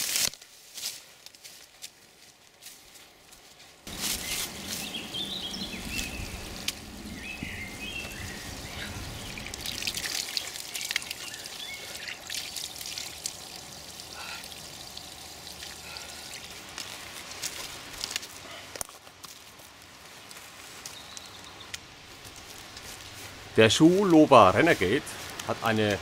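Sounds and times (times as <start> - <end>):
water trickling from a pipe: 7.8 - 18.4
hands splashing water: 8.6 - 18.2.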